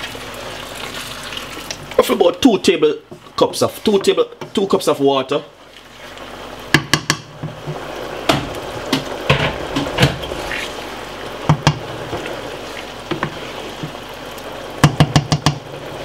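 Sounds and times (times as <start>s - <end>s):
liquid bubbling in pan: 0.0s - 16.0s
wooden spoon knocking pan: 6.7s - 10.3s, 11.5s - 12.2s, 14.8s - 15.6s.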